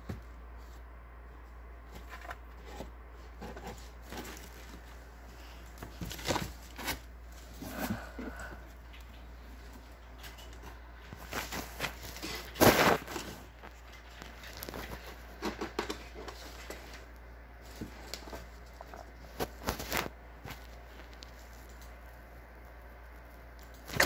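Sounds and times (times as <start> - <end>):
kitten scrabbling in paper: 10.3 - 16.8, 17.7 - 22.1.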